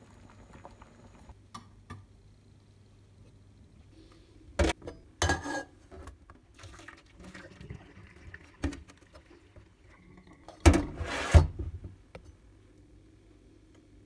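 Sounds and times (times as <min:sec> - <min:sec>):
water poured into sink: 0:06.5 - 0:10.6.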